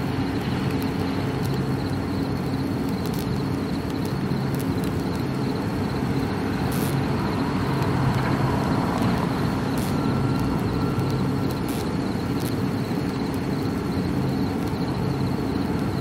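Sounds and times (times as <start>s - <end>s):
diesel engines low hum: 0.0s - 16.0s.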